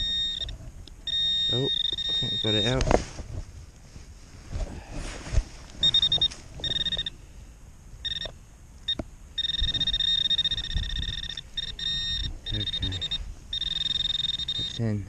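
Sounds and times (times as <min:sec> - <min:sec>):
metal detector beeping: 0:00.0 - 0:02.9, 0:05.8 - 0:07.2, 0:08.0 - 0:15.0.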